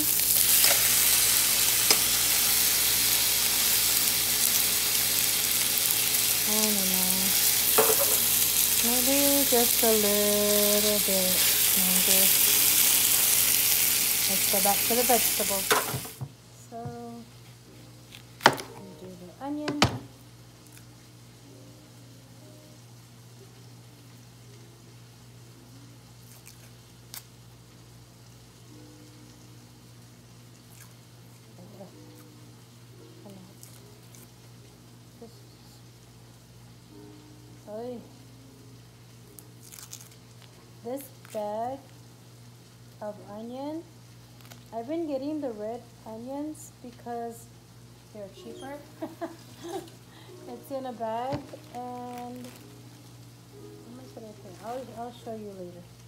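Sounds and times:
meat sizzling in hot oil: 0.0 - 16.2
onion skin crackling as peeled: 18.1 - 18.6, 26.2 - 27.4, 30.4 - 32.4, 33.3 - 34.8, 39.3 - 42.0, 44.1 - 44.8, 51.5 - 53.2.

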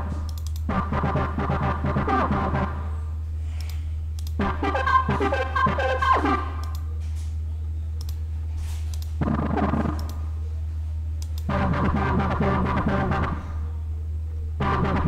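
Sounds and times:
synth chord bursts: 0.0 - 3.0, 4.4 - 6.8, 11.5 - 13.6
low hum: 0.0 - 15.0
sharp clicks: 0.2 - 0.7, 3.6 - 4.4, 6.6 - 6.9, 8.0 - 8.2, 8.9 - 10.2, 11.2 - 11.5.

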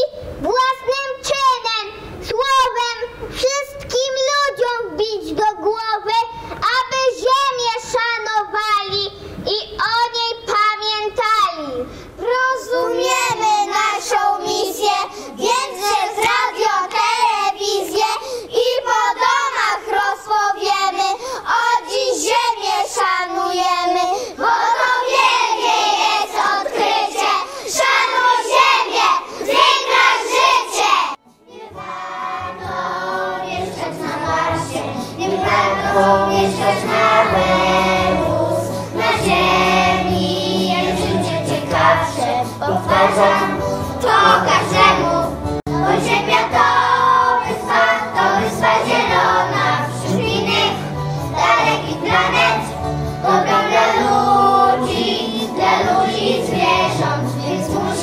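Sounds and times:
children singing: 12.6 - 58.0.

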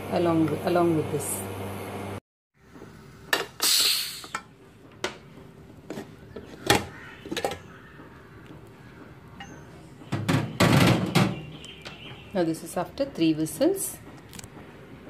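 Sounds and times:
pressure cooker steam burst: 3.5 - 4.4
metal lid clinks and knocks: 6.6 - 7.6.

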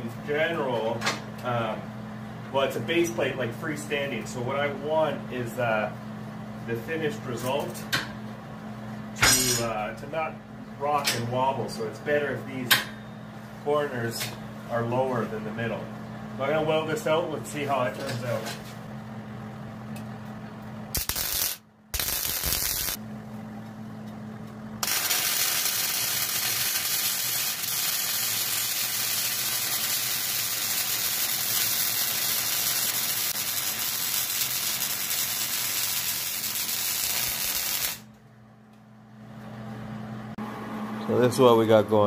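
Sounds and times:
arc welding crackling hiss: 21.0 - 23.0, 24.8 - 38.1.

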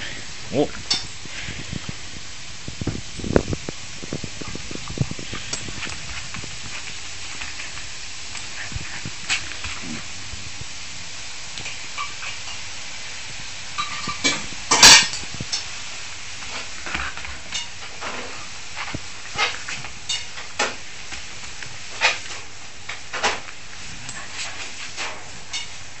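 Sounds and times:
dogs play-fighting: 4.4 - 10.6, 16.4 - 22.6, 23.2 - 25.6.

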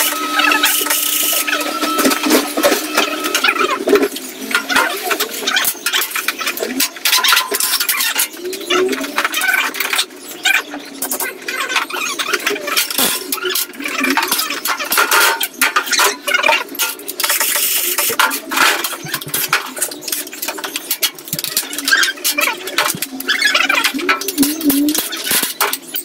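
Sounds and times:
metal tools clinking and rattling: 11.5 - 26.0.

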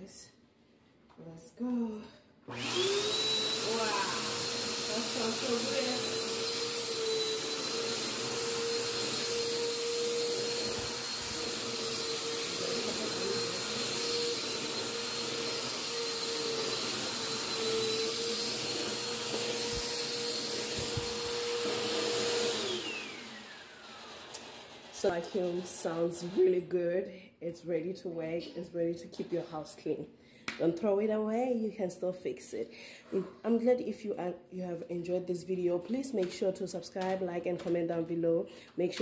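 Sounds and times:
vacuum motor winding down: 2.5 - 26.6
vacuum cleaner running on carpet: 2.5 - 26.7.

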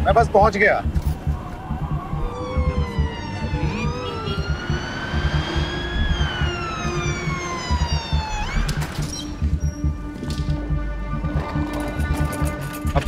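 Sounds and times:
siren wailing: 0.3 - 10.1
low rumble: 0.3 - 12.3.

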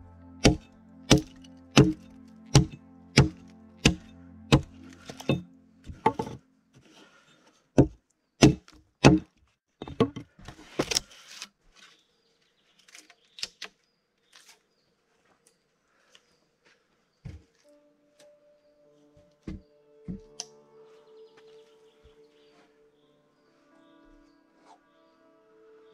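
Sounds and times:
background music with held tones: 0.0 - 8.5, 17.3 - 25.9
hand tool striking wood: 0.4 - 6.4, 7.8 - 11.0.

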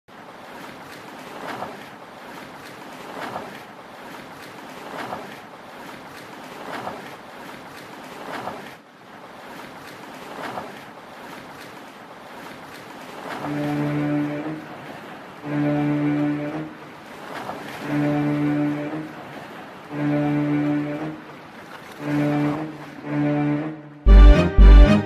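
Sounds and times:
ocean waves rushing hiss: 13.0 - 23.8.

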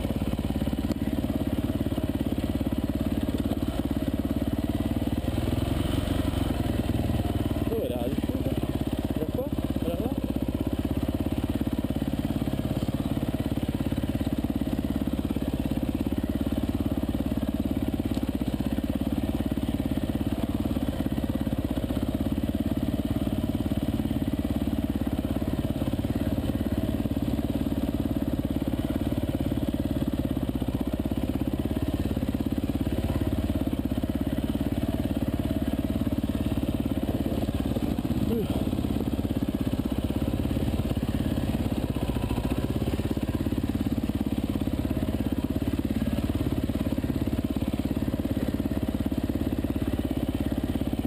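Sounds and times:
dirt bike engine at low revs: 0.0 - 51.0.

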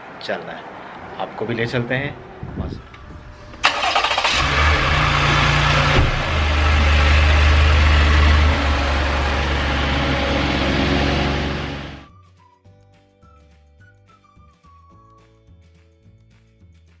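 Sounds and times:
car engine starting and idling: 3.2 - 12.1.

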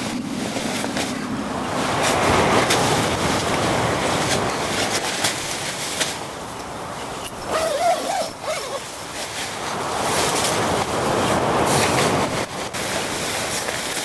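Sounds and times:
wind: 0.0 - 14.0
brief wavering tone: 7.2 - 9.2.

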